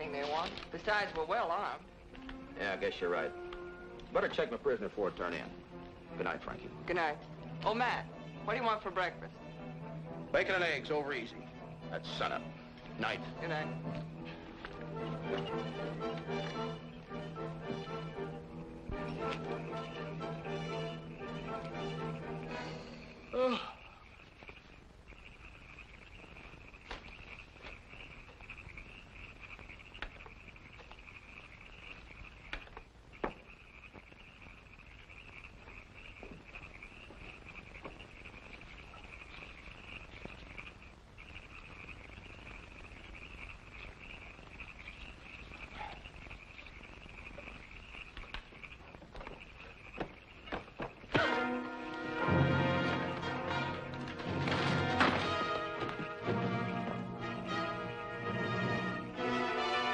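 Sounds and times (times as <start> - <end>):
frogs and insects chorus: 0.0 - 59.9
faint clicks and snaps: 47.3 - 49.6.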